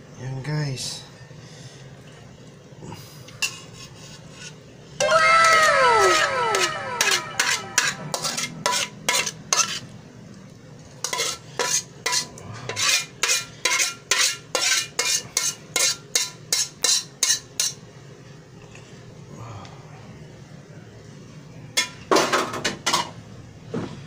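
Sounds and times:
metal spoon scraping a pan: 3.4s - 4.6s, 6.6s - 9.9s, 11.0s - 17.8s
pan ringing tone: 5.0s - 8.6s.

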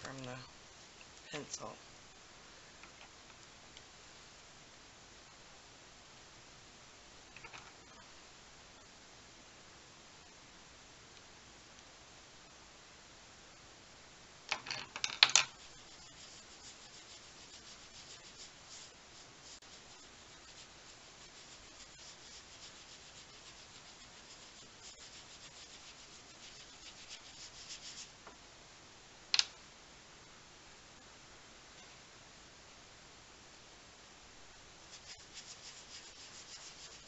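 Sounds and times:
pencil scratching on paper: 15.5s - 28.2s, 34.8s - 37.0s.

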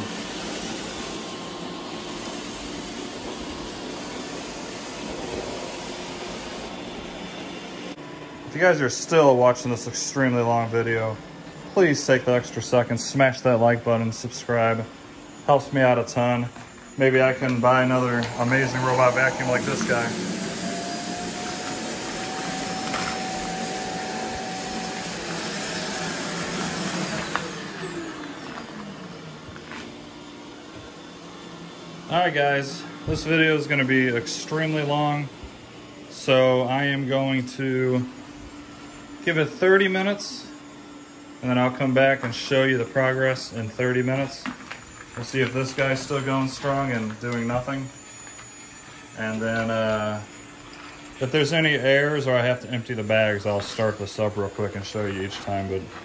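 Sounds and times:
robot vacuum whirring: 14.3s - 37.1s, 40.6s - 56.0s.

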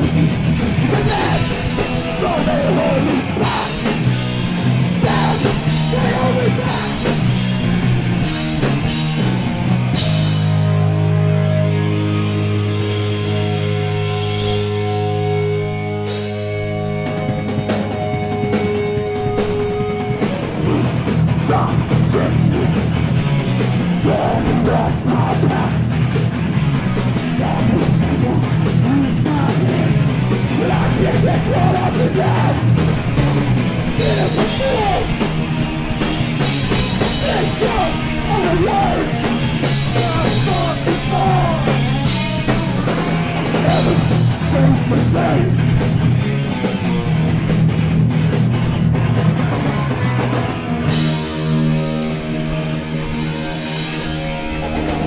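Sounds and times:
bass: 0.0s - 55.0s
distorted electric guitars: 0.0s - 55.0s
drums: 0.0s - 55.0s
shouted vocals: 0.8s - 7.4s, 27.4s - 32.8s, 33.9s - 35.4s, 36.6s - 45.6s.

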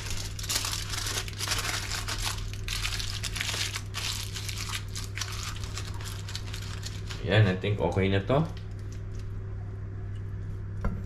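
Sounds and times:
aluminium foil crinkling: 0.0s - 7.4s.

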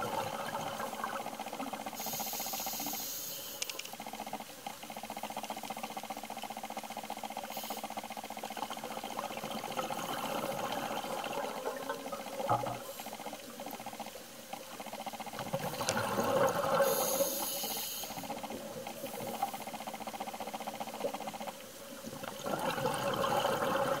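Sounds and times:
scuba regulator hiss: 2.0s - 3.7s, 16.8s - 18.3s
exhaled bubbles rushing: 15.4s - 16.8s, 22.1s - 24.0s.

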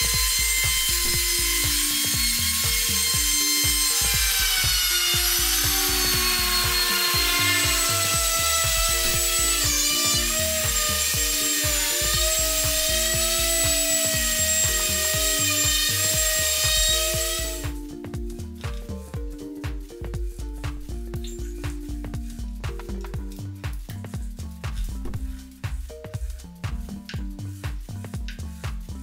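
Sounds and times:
trim router whine: 0.0s - 17.7s
orbital sander humming: 0.0s - 17.9s
background music with steady beat: 0.0s - 29.0s.

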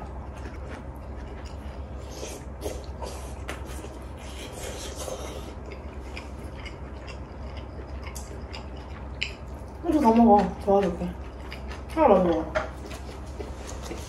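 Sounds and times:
low steady hum: 0.0s - 14.0s
person chewing: 0.0s - 14.0s
person slurping noodles: 1.8s - 5.6s.

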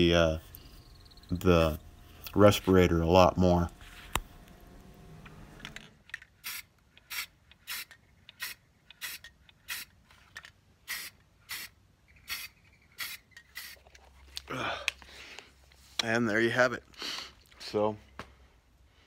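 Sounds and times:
spray paint can bursts: 6.4s - 9.9s, 10.8s - 13.8s.

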